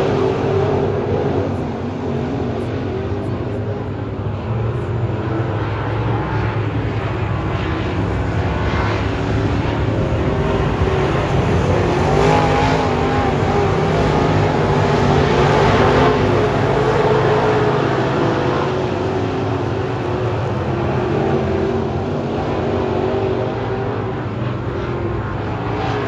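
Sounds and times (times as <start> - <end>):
race car engines droning: 0.0 - 26.0
race car passing by: 0.0 - 26.0.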